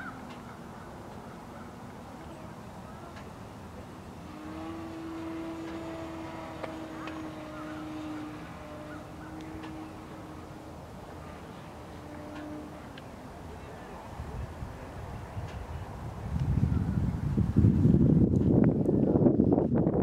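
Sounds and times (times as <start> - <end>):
model plane motor humming: 4.2 - 13.3
wind rumble on microphone: 13.9 - 20.0.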